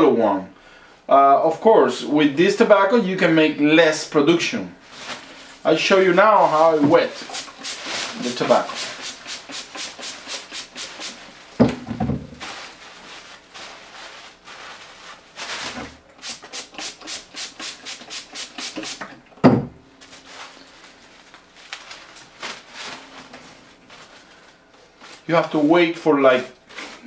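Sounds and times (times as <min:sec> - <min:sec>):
dry leaves rustling: 0:04.8 - 0:11.6, 0:12.3 - 0:15.8, 0:20.0 - 0:25.8
spray bottle squirts: 0:06.5 - 0:11.3, 0:16.2 - 0:19.2.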